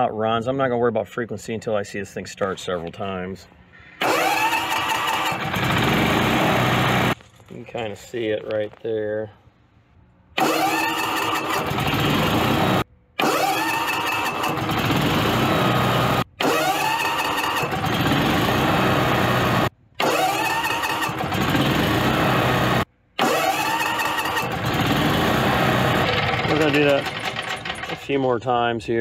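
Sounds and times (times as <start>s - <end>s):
generator engine starting: 3.8s - 7.2s, 10.4s - 28.3s.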